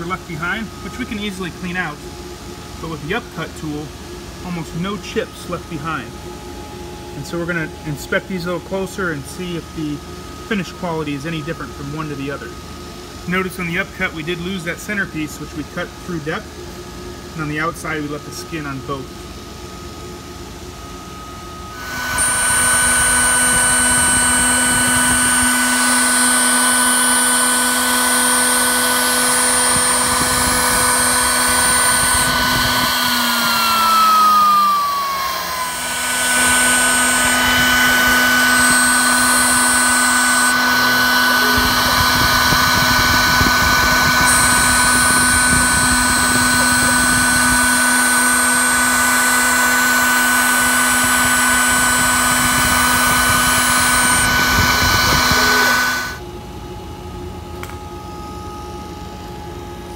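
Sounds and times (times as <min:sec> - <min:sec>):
router spindle whine: 0:20.6 - 0:59.9.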